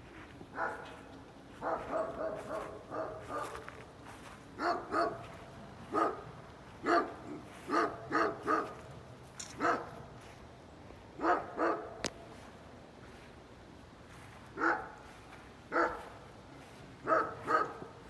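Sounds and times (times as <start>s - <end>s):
dog barking: 0.6s - 1.0s, 1.6s - 3.8s, 4.6s - 8.8s, 9.6s - 10.0s, 11.2s - 12.1s, 14.6s - 15.0s, 15.7s - 16.2s, 17.0s - 18.0s.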